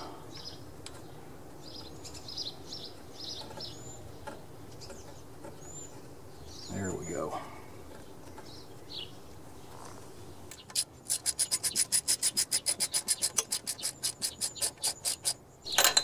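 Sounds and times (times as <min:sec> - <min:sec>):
socket ratchet clicking rapidly: 0:10.5 - 0:15.4.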